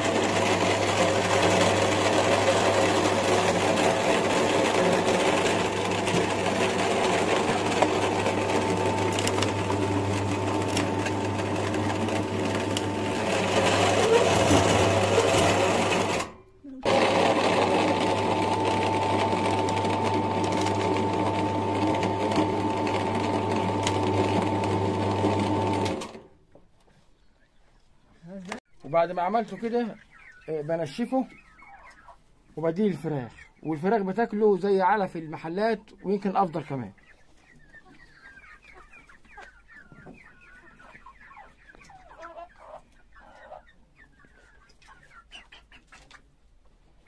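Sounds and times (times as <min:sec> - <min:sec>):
electric meat grinder running: 0:00.0 - 0:26.3
hens clucking: 0:26.7 - 0:47.0.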